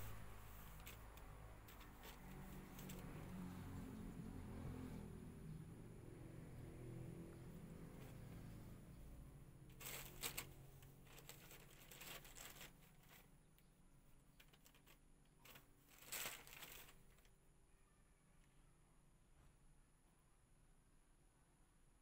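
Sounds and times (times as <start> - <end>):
plastic bag rustling: 0.0 - 3.1, 9.7 - 13.4, 14.3 - 17.3.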